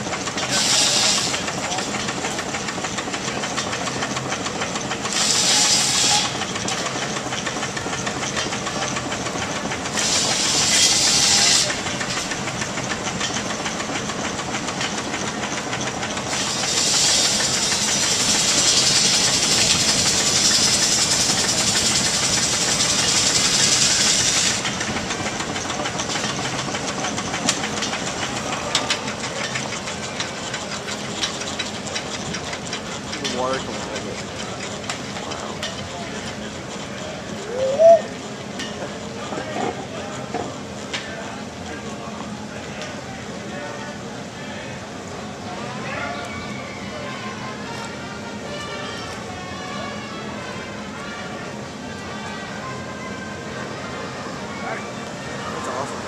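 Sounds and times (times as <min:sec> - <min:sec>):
steam hissing bursts: 0:00.0 - 0:03.2, 0:03.8 - 0:13.6, 0:15.0 - 0:30.4
steam engine mechanical clatter: 0:00.0 - 0:46.4.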